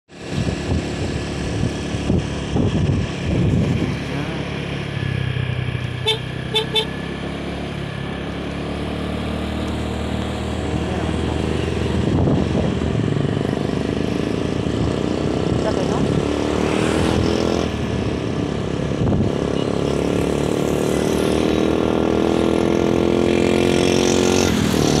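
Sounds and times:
vehicle engine running: 0.1s - 20.7s
road noise: 0.1s - 25.0s
car horn toots: 6.0s - 6.9s.

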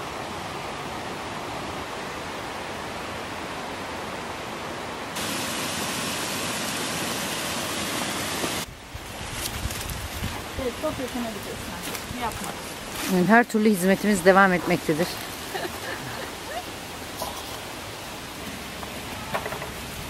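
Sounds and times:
stream water running: 0.0s - 20.0s
small waterfall pouring: 5.2s - 13.0s, 14.0s - 20.0s.

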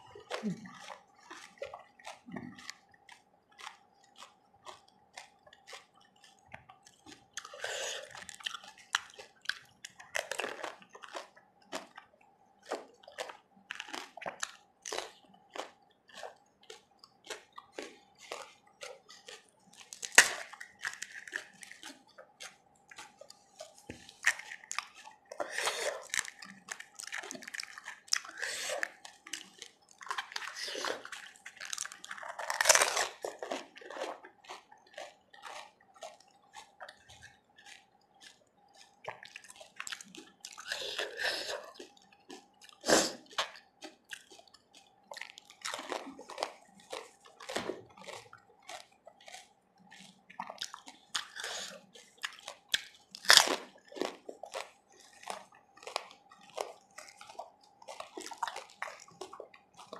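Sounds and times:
wet watery chewing: 0.0s - 59.9s
crisp shells crunching: 12.7s - 59.9s.

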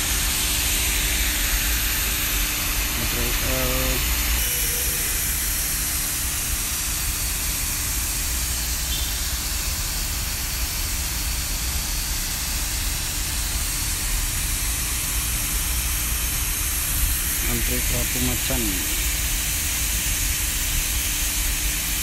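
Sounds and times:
low machinery drone: 0.0s - 22.0s
hiss of rushing air: 10.2s - 22.0s.

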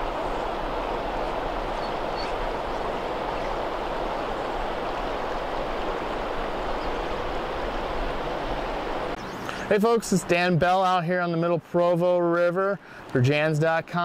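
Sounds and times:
river rushing over rocks: 0.0s - 10.4s.

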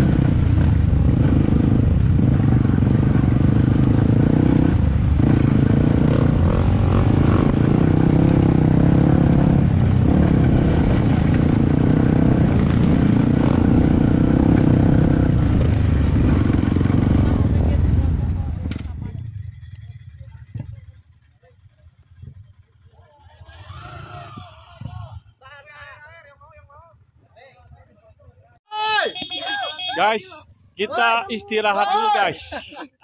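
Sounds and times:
motorcycle engine running: 0.0s - 25.4s.

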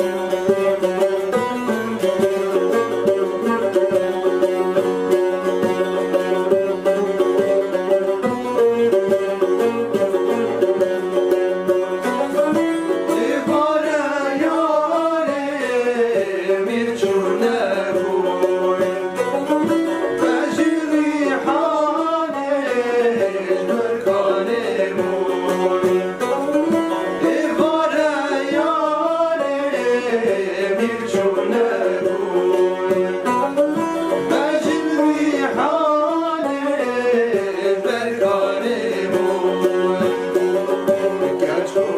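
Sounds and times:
plucked banjo and saz: 0.0s - 41.9s
man singing: 12.8s - 41.9s.

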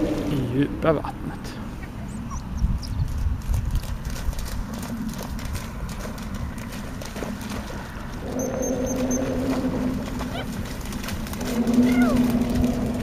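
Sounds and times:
wind rumble on microphone: 2.0s - 13.0s
dog splashing through water: 3.7s - 13.0s.

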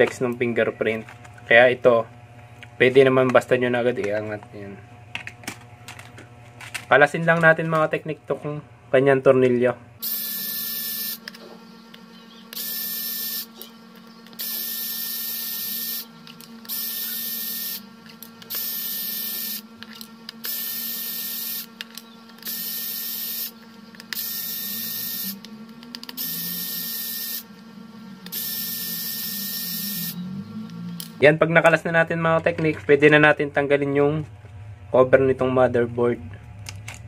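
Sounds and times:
electric screwdriver whirring: 10.0s - 31.2s.

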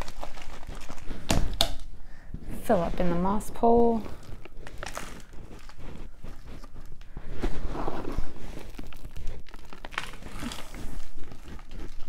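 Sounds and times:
hands rustling potting soil: 2.4s - 12.0s.

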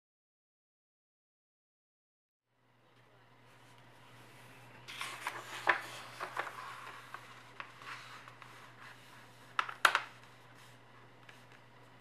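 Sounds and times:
paper rustling and sliding: 4.2s - 11.6s
paper crinkling: 4.9s - 11.6s.

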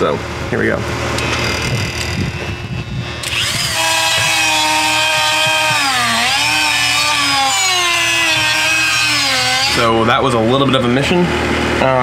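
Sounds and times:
rotary tool whining: 1.2s - 10.0s.

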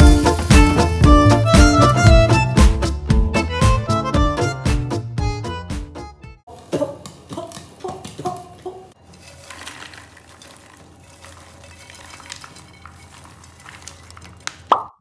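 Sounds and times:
popcorn pouring into a bowl: 0.0s - 2.1s, 9.0s - 14.8s.

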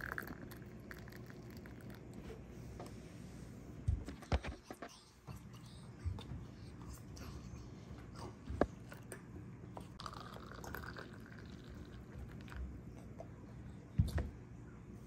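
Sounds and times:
hot water pouring into containers: 10.0s - 12.6s.

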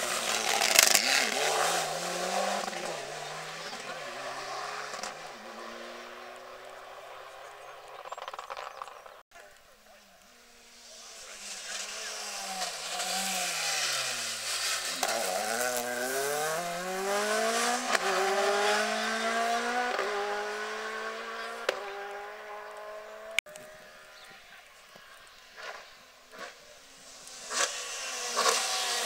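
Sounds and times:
rally car passing at speed: 0.0s - 9.1s, 10.4s - 24.2s, 25.6s - 29.0s.

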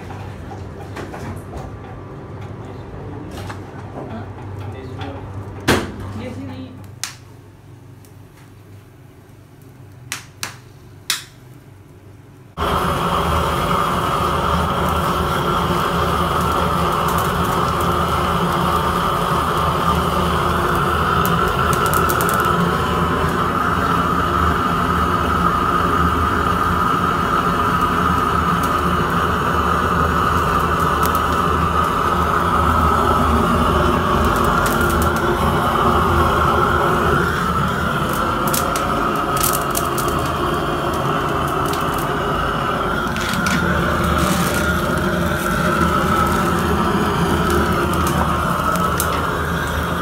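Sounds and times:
blowtorch flame hissing: 12.5s - 50.0s.

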